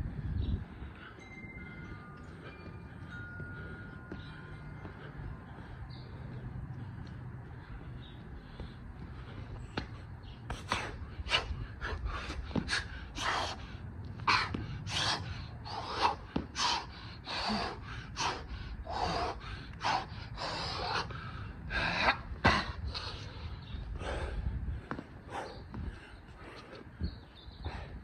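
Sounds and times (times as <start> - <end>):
man breathing hard and gasping: 0.0 - 28.0.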